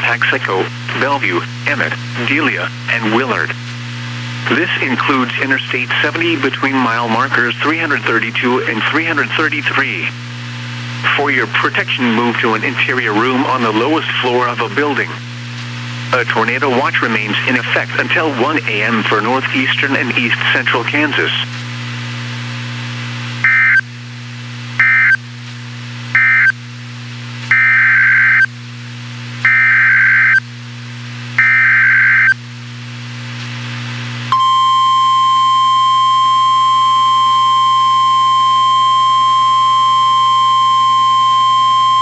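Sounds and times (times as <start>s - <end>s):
steady warning alarm tone: 23.4s - 23.8s, 24.8s - 25.2s, 26.2s - 26.6s, 27.5s - 28.5s, 29.4s - 30.4s, 31.4s - 32.4s, 34.3s - 42.0s
low hum: 34.2s - 42.0s.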